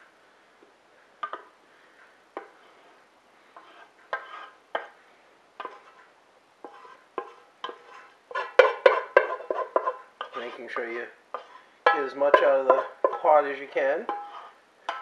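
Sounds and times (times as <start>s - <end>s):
utensil knocking on cooking pot: 8.5s - 9.9s, 11.9s - 13.3s.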